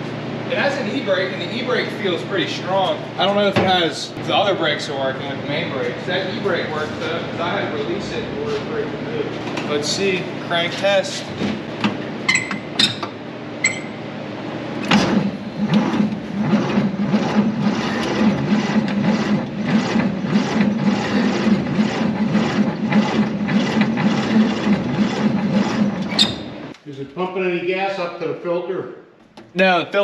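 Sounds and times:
engine cranking without starting: 14.8s - 26.4s.

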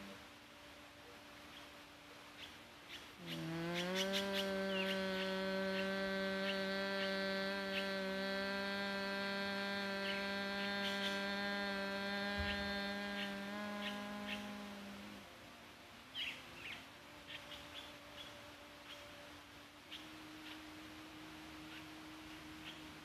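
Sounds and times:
woman humming low note: 0.0s - 0.3s, 3.2s - 19.2s, 20.0s - 23.0s
faint bird chirps: 1.0s - 8.2s, 16.1s - 19.2s, 19.9s - 20.8s, 21.6s - 23.0s.

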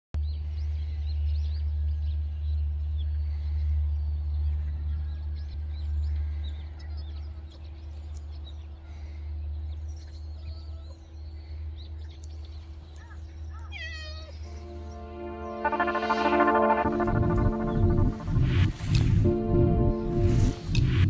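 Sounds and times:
small birds chirping: 4.0s - 15.0s
steady low rumble: 14.5s - 21.0s.

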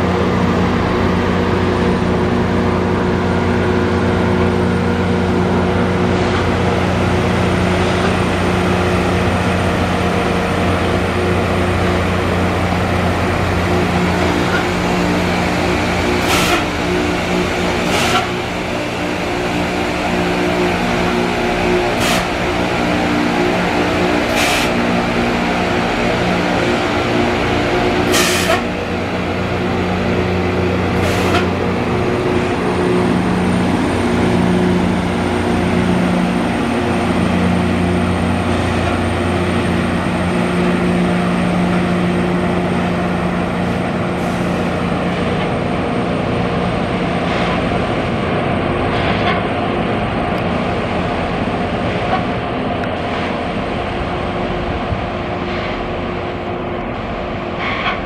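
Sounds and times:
diesel engine drone: 0.0s - 58.0s
grinding stones on rail: 11.6s - 33.6s.

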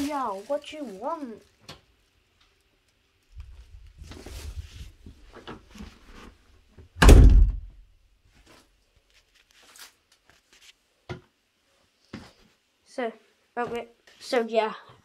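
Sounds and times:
door banging: 7.0s - 7.8s.

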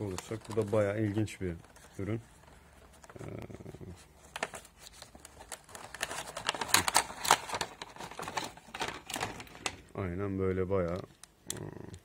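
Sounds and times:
plastic blister pack crinkling: 0.0s - 3.6s, 4.2s - 10.0s
sharp plastic cracks: 5.5s - 9.8s.

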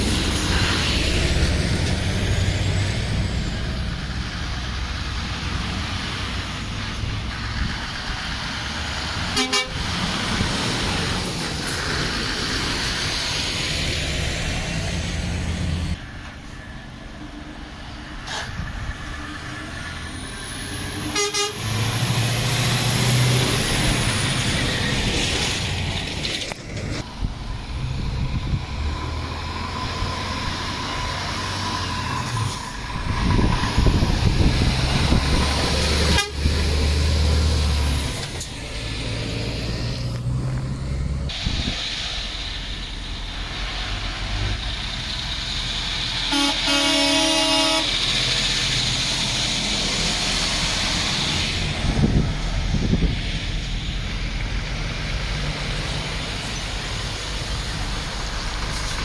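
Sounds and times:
lorry diesel engines passing: 0.0s - 59.0s.

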